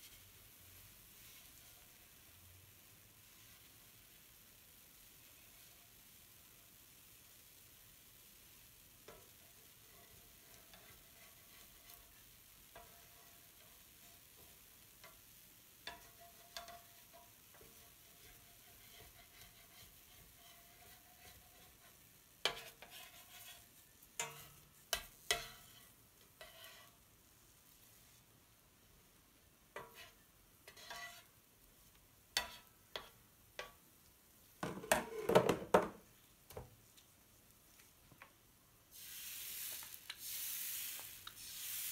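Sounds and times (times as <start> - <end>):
spatula scraping a griddle: 0.0 - 0.4, 1.2 - 2.3, 9.0 - 27.0, 29.8 - 33.8, 38.9 - 41.9
faint sizzling: 0.0 - 41.9.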